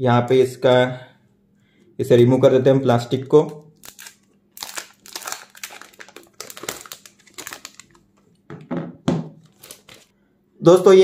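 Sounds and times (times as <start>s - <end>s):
plastic film peeling and crinkling: 3.5s - 8.4s, 9.4s - 10.1s.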